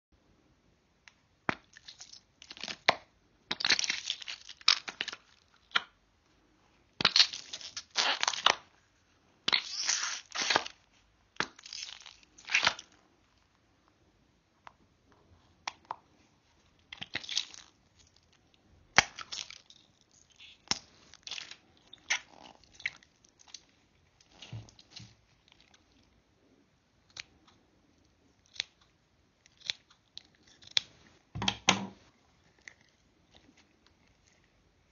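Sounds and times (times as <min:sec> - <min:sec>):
squishy stress ball squelching: 0:16.6 - 0:26.1.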